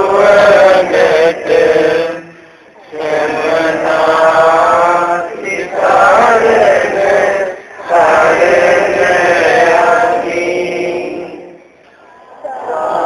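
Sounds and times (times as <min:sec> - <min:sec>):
men chanting together: 0:00.0 - 0:11.6.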